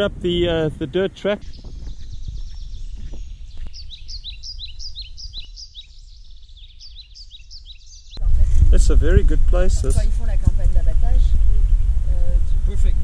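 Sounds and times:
small birds chirping: 0.9s - 8.4s
low rumble: 8.2s - 13.0s.

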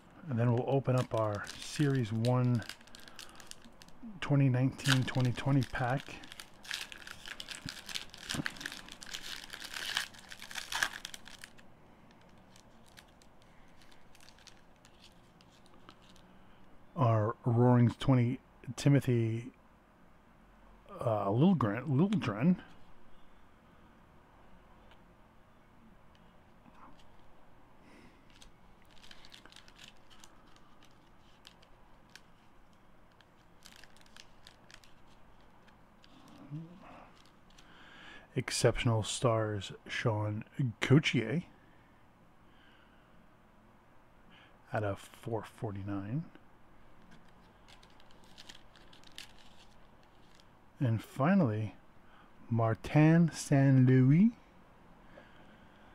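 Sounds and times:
trading cards rustling and clicking: 0.4s - 16.2s, 28.3s - 36.4s, 47.0s - 50.5s
wrapper tearing and crinkling: 0.8s - 4.1s, 4.7s - 16.2s, 28.3s - 32.5s, 33.1s - 36.4s, 47.2s - 50.5s.

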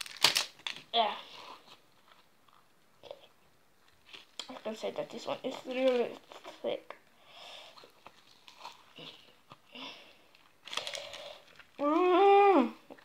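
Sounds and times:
slime crackling and popping: 0.0s - 0.8s.

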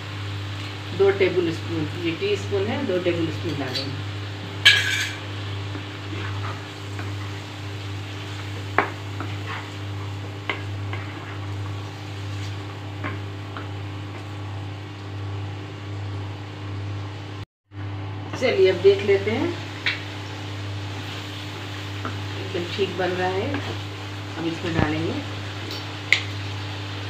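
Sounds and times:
low sizzle: 0.0s - 27.0s
wooden spatula scraping a pan: 6.1s - 13.2s.

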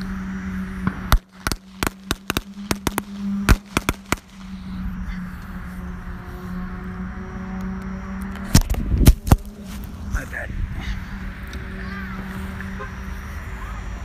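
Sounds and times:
steady low hum: 0.0s - 14.0s
firecrackers banging: 0.7s - 4.6s.

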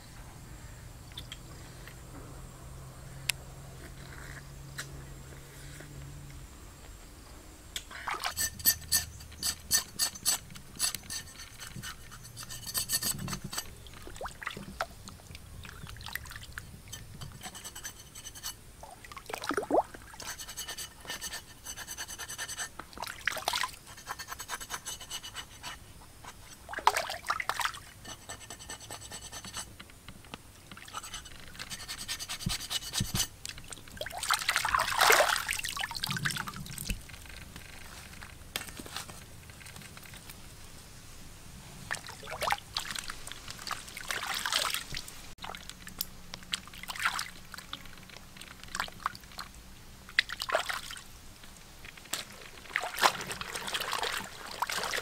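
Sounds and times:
rubbing and scraping: 7.9s - 13.8s, 16.9s - 18.6s, 20.2s - 26.8s, 27.5s - 29.8s, 30.8s - 33.4s
small liquid splashes: 18.8s - 20.2s, 26.7s - 27.8s, 33.7s - 36.5s, 41.9s - 45.8s, 50.1s - 51.0s, 52.1s - 55.0s.

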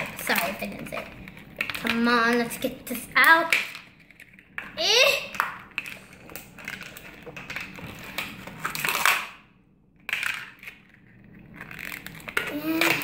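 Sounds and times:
plastic packaging crackling: 5.3s - 9.4s, 10.1s - 13.0s.

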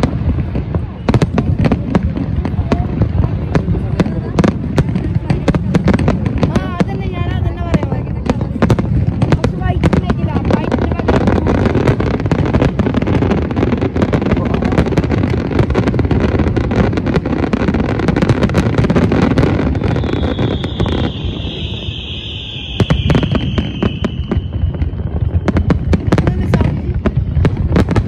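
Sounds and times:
fireworks bangs and crackling: 0.0s - 28.0s
falling firework whistle: 19.0s - 26.2s.

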